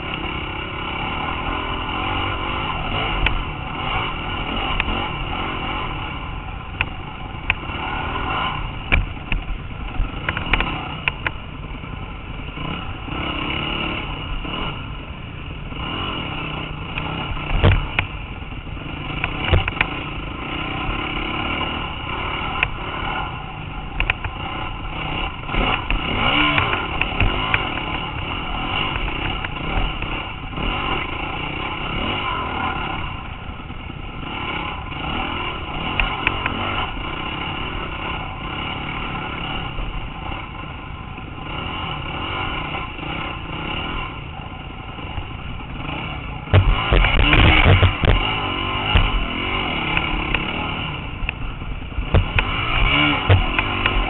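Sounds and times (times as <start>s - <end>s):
dirt bike engine revving: 0.0s - 54.0s
bike rattling and clatter: 15.8s - 54.0s.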